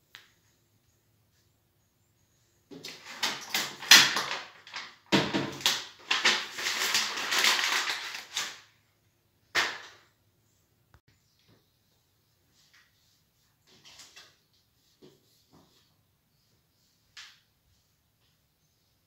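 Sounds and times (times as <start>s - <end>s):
paper crumpling: 2.9s - 8.7s.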